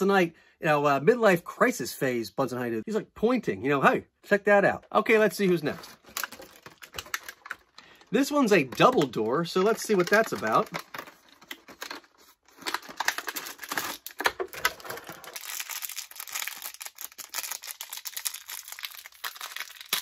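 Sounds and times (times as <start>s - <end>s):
plastic packaging crinkling: 5.4s - 20.0s.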